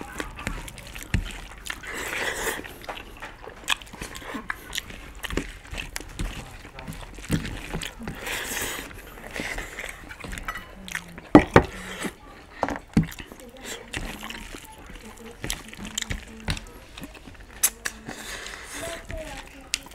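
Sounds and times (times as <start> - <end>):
breathing or slurping: 0.0 - 3.2, 7.2 - 10.1, 17.6 - 19.5
fingers squishing rice: 0.0 - 19.9
wet chewing sounds: 0.0 - 19.9.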